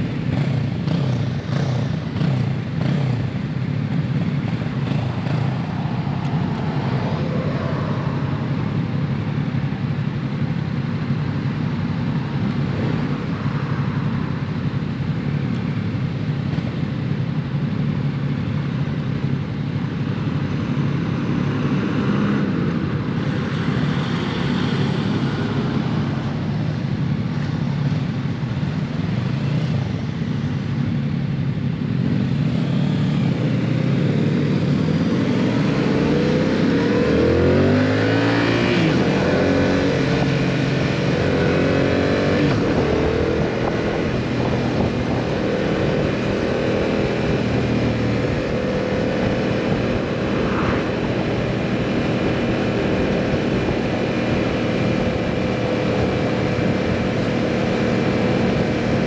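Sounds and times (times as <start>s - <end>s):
motorcycle engine running: 0.0s - 59.0s
wind noise on microphone: 38.4s - 59.0s.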